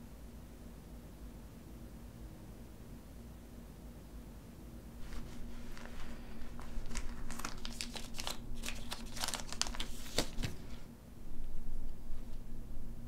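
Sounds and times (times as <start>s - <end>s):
faint low room hum: 0.0s - 13.0s
crinkling and rustling: 5.0s - 10.9s.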